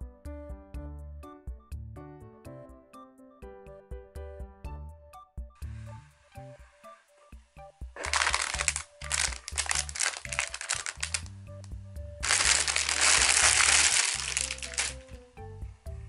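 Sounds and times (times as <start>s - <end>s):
background music with bass line: 7.6s - 16.0s
packaging crinkling and rustling: 8.0s - 11.3s, 12.2s - 15.1s.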